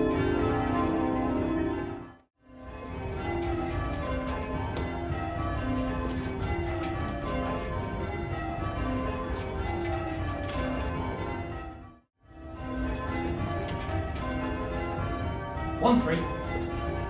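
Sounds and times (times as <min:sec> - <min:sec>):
church bells ringing in rounds: 0:00.0 - 0:17.0.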